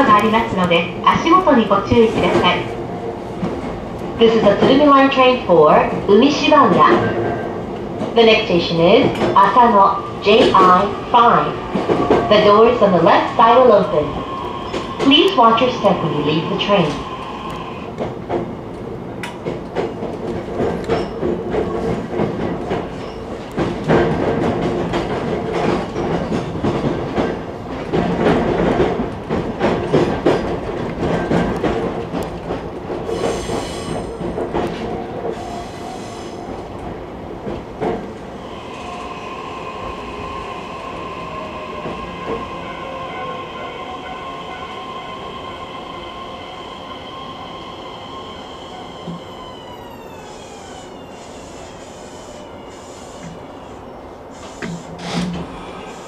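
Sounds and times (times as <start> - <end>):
electric train whine: 0.0 - 18.2, 38.0 - 56.0
train wheels clicking over rail joints: 17.9 - 39.2
hiss: 35.4 - 36.4, 50.8 - 53.4, 54.3 - 56.0.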